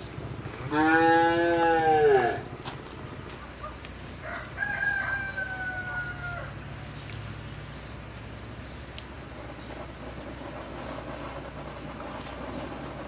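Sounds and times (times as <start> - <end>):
rooster crowing: 4.2 - 6.7.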